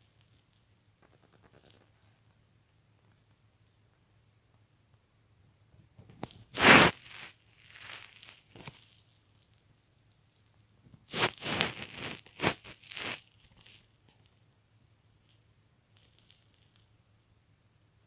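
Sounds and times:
bed covers rustling: 6.5s - 9.0s, 11.1s - 13.8s.

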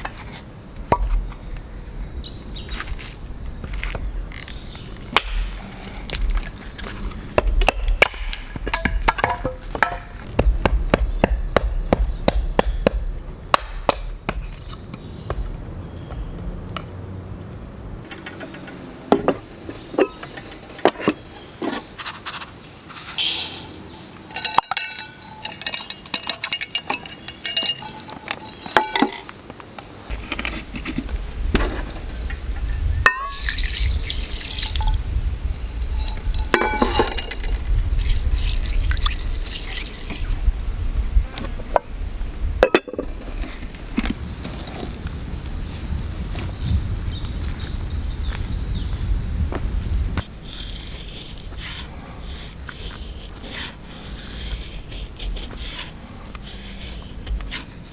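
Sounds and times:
hatchet chopping wood: 5.2s - 5.6s, 7.4s - 14.7s
metal cup clinking on pot: 24.3s - 29.3s, 33.1s - 33.6s, 36.0s - 37.6s, 42.6s - 43.1s.

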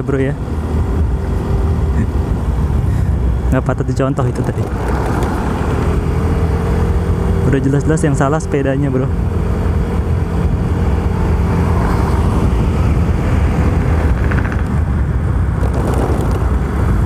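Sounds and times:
wind rush: 0.0s - 7.5s, 9.1s - 17.0s
road noise: 0.0s - 17.0s
scooter engine cruising: 4.3s - 17.0s.

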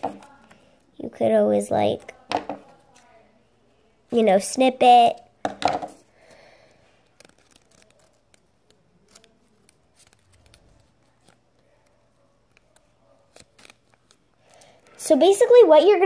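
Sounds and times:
paper rustling: 7.0s - 15.0s.

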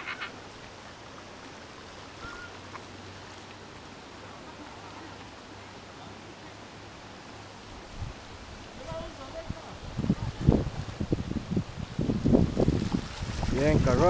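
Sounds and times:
river water rushing: 0.0s - 14.0s
faint short chirp: 2.2s - 2.6s.

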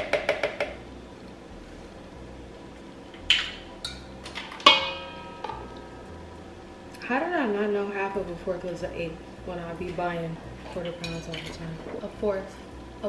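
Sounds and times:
kitchenware clanking: 3.3s - 5.9s, 10.7s - 12.1s.

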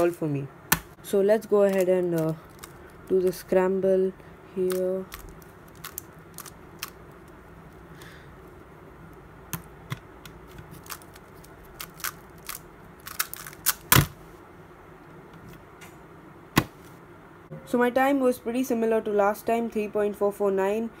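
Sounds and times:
puzzle cube turning clicks: 1.7s - 3.4s, 4.7s - 8.2s, 9.1s - 14.1s.

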